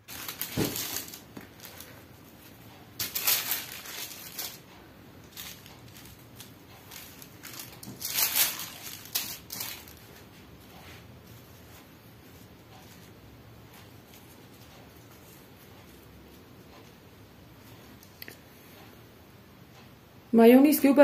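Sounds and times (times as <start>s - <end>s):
paper rustling and crinkling: 0.0s - 4.6s, 5.3s - 10.3s.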